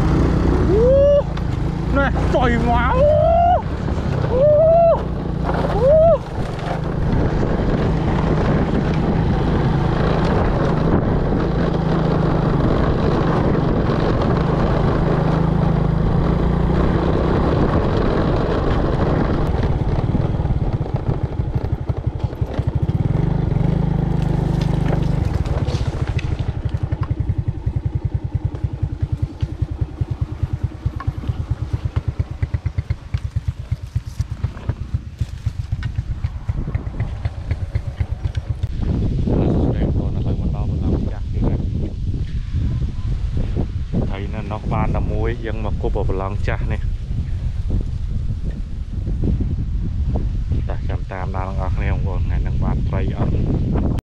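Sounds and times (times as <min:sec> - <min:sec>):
small motorcycle engine: 0:00.0 - 0:39.6.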